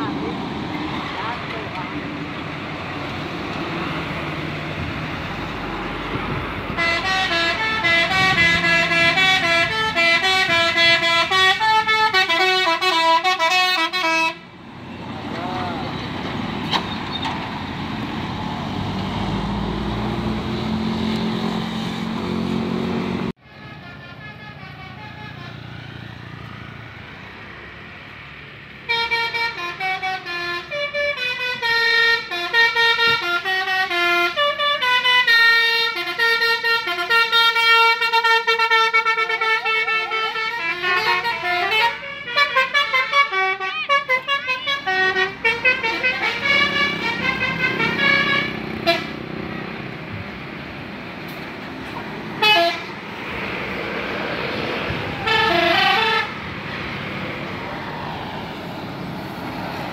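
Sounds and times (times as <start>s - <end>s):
bus engine and road noise: 0.0s - 59.9s
musical bus horn melody: 6.7s - 14.5s, 23.4s - 25.8s, 28.8s - 49.2s, 52.4s - 53.0s, 55.2s - 56.5s.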